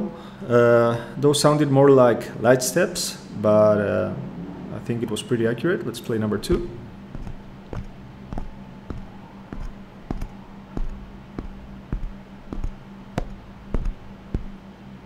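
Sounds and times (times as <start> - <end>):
low steady hum: 0.0 - 15.0
boot footsteps on wooden floor: 6.4 - 14.6.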